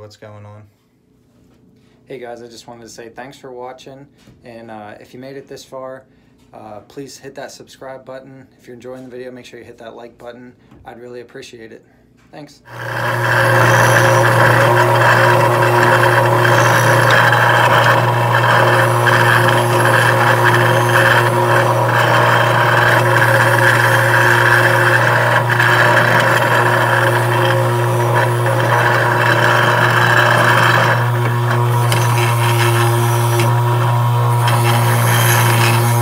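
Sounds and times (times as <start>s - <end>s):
grinder motor hum: 12.7s - 36.0s
wire wheel scratching metal: 12.7s - 36.0s.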